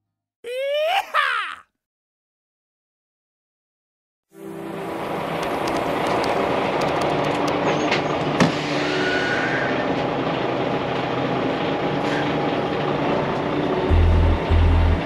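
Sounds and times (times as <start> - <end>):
diesel truck engines running: 4.6 - 15.0.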